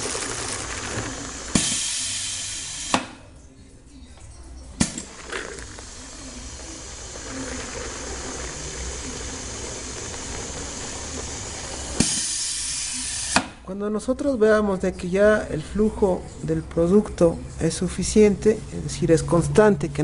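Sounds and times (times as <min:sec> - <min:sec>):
liquid soap pouring into plastic tub: 0:00.0 - 0:02.2, 0:04.9 - 0:12.7
loud hiss: 0:00.0 - 0:03.1, 0:04.8 - 0:13.6.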